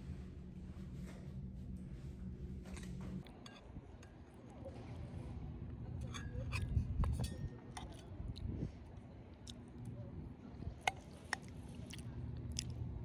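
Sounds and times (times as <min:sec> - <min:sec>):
person chewing: 0:10.9 - 0:12.8.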